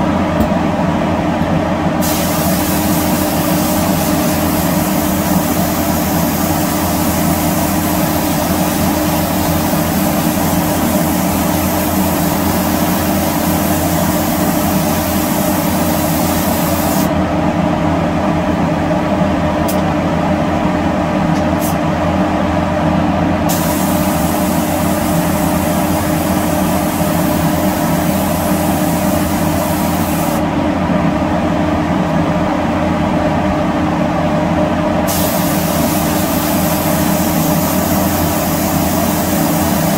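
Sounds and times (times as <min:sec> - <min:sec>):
spray gun hissing: 0:02.0 - 0:17.1, 0:23.5 - 0:30.4, 0:35.1 - 0:39.9.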